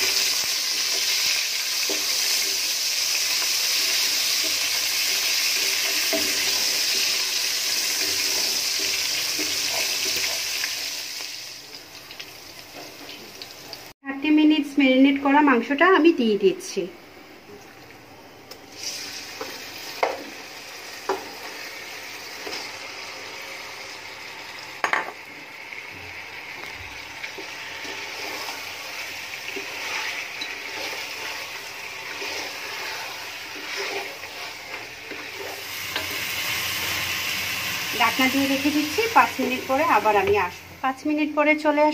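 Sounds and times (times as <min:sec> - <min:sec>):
meat sizzling in hot oil: 0:00.0 - 0:14.0, 0:18.7 - 0:40.8.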